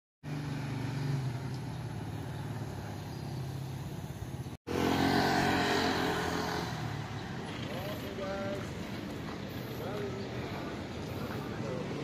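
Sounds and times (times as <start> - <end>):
street traffic engines: 0.2 - 12.0.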